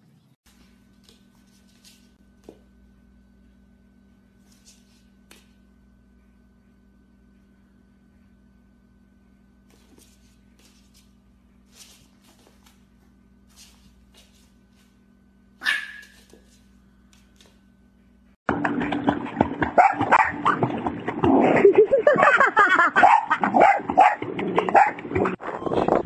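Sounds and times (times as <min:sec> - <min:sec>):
dog barking and yelping: 0:15.6 - 0:16.2, 0:22.9 - 0:25.0.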